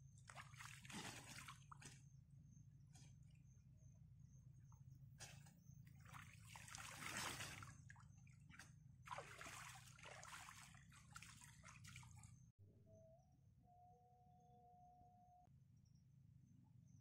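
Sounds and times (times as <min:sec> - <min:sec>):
water sloshing and trickling: 0:00.0 - 0:02.2, 0:05.2 - 0:12.5.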